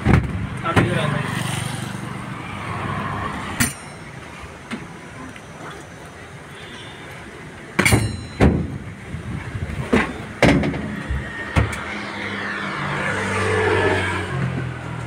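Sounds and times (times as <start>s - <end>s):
motor vehicle passing: 1.0s - 3.7s, 10.8s - 15.0s.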